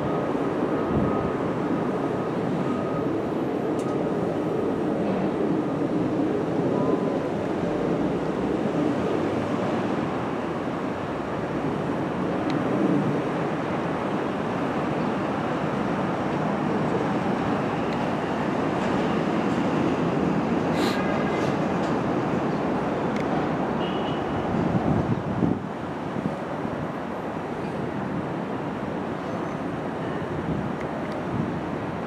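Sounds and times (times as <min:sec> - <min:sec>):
train wheels rolling on rail: 0:00.0 - 0:23.7.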